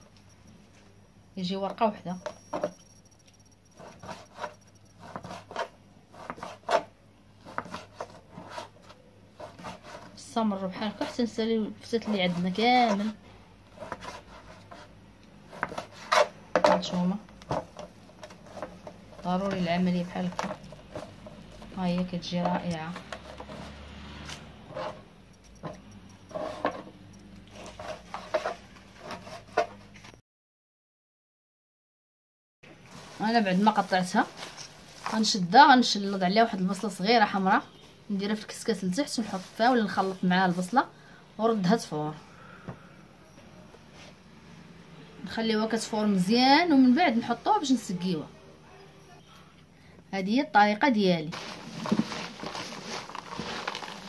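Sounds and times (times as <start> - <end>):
knife slicing flatbread: 3.8 - 13.1, 13.7 - 16.8, 27.5 - 30.0
dry pastry rustling: 32.8 - 36.3, 51.2 - 54.0.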